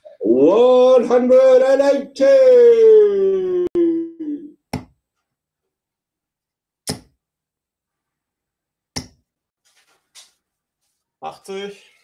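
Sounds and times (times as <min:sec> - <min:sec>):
darts hitting dartboard: 0:09.0 - 0:09.2.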